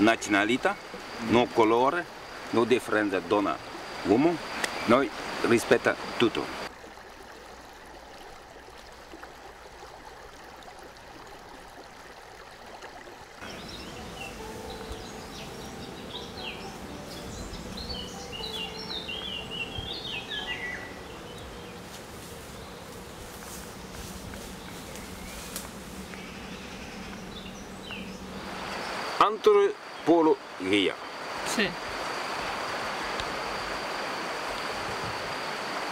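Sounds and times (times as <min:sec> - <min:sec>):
outdoor background noise: 0:00.0 - 0:35.9
small birds chirping: 0:13.4 - 0:31.2.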